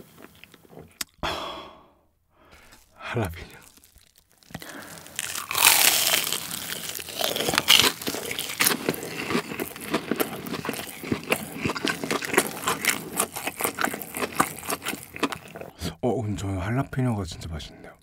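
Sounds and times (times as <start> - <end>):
crisp chewing: 0.0 - 1.2, 2.5 - 15.8
crunch of breaded crust: 2.5 - 15.8.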